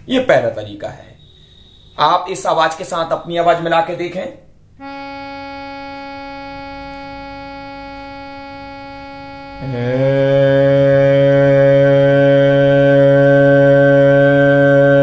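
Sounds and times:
steady drone note: 0:01.2 - 0:02.6, 0:04.8 - 0:15.0
man singing a long note: 0:08.8 - 0:15.0.

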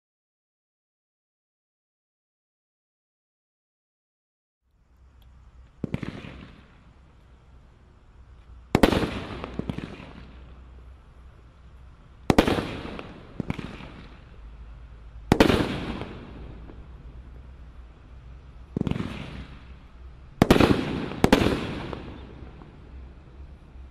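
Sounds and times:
firework reports: 0:05.8 - 0:23.9.

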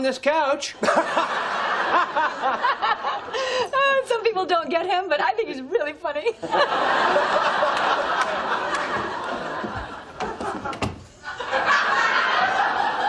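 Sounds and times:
audience laughing: 0:00.8 - 0:03.6, 0:06.4 - 0:13.0.

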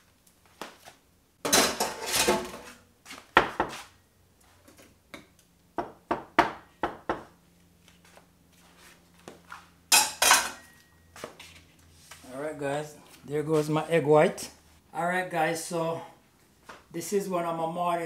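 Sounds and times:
kitchen utensils and dishes clinking: 0:01.5 - 0:02.8, 0:09.9 - 0:10.9.

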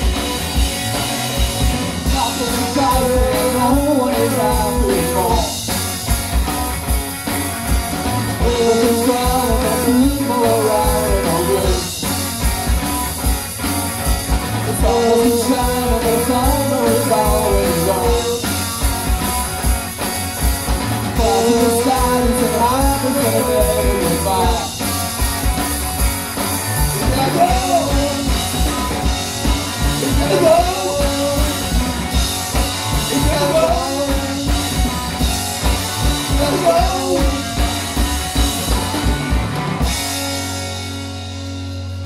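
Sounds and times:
bass guitar: 0:00.0 - 0:42.0
drum kit: 0:00.0 - 0:42.0
electric guitar: 0:00.0 - 0:42.0
person singing lead vocal: 0:02.0 - 0:05.6, 0:08.4 - 0:12.0, 0:14.7 - 0:18.6, 0:21.2 - 0:24.8, 0:26.9 - 0:28.9, 0:29.7 - 0:31.9, 0:32.9 - 0:34.8, 0:36.1 - 0:37.7.

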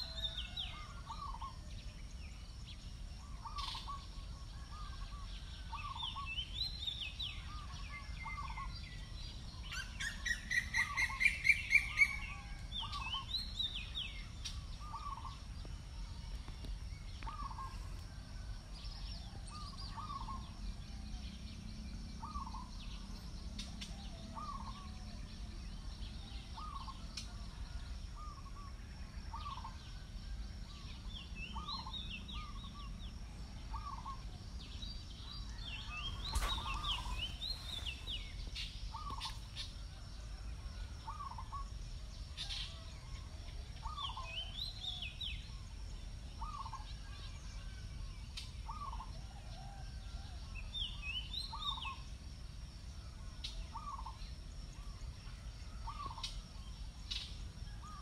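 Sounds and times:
birds chirping: 0:03.2 - 0:15.7, 0:16.3 - 0:28.6, 0:30.8 - 0:39.8
rapid rising bird calls: 0:35.5 - 0:39.6.

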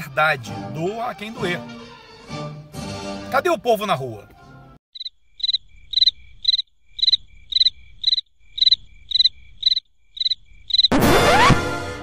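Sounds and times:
crickets chirping: 0:04.9 - 0:10.9.

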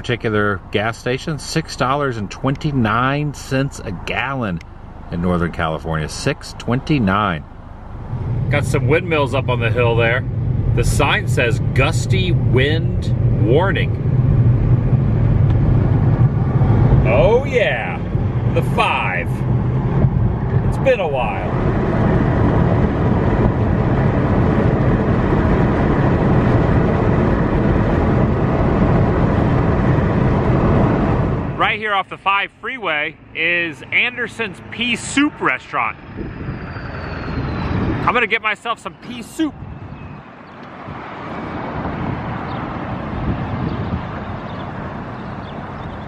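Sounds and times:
road and wind noise in car: 0:00.0 - 0:46.0.

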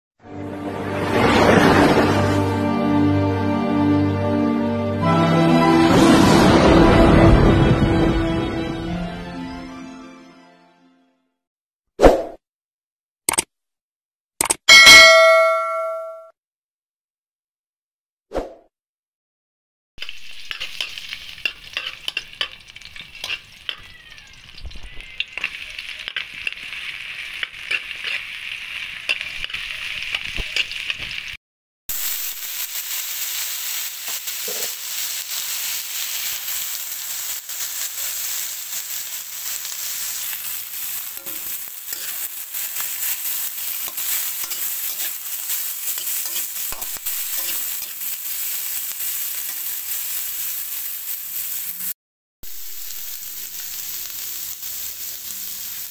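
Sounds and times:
spatula scraping and tapping wok: 0:20.0 - 0:23.9, 0:25.2 - 0:31.2, 0:34.0 - 0:35.1, 0:39.4 - 0:49.8
food sizzling in oil: 0:20.0 - 0:55.9.

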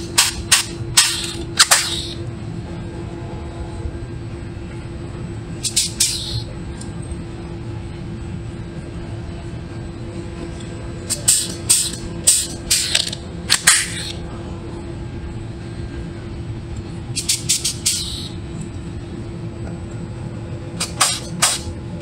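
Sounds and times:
steady low hum: 0:00.0 - 0:22.0
pneumatic rivet gun hissing: 0:00.2 - 0:02.2, 0:05.6 - 0:06.4, 0:11.1 - 0:14.1, 0:17.2 - 0:18.3, 0:20.8 - 0:21.7.

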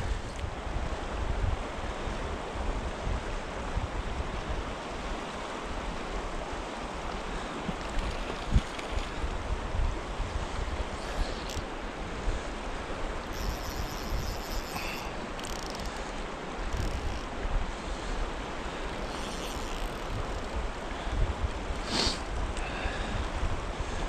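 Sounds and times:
river current rushing: 0:00.0 - 0:24.0
wind buffeting microphone: 0:07.6 - 0:15.0, 0:19.5 - 0:24.0.

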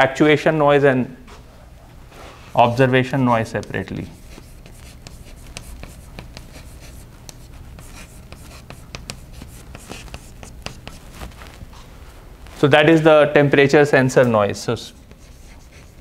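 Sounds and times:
steady low hum: 0:00.0 - 0:16.0
chalk tapping and scratching: 0:02.6 - 0:11.9, 0:14.9 - 0:16.0.

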